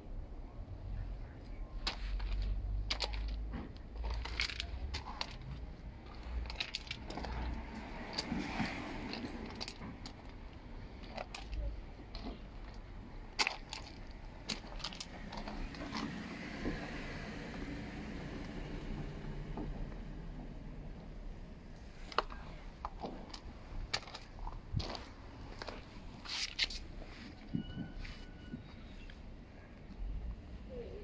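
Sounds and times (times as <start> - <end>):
footsteps crunching on gravel: 22.2 - 26.9.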